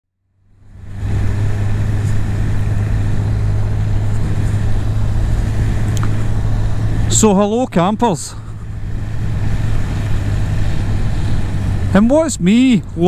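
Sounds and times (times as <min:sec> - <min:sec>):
motorcycle engine cruising: 0:00.4 - 0:13.0
tyres hissing on wet road: 0:08.2 - 0:12.1.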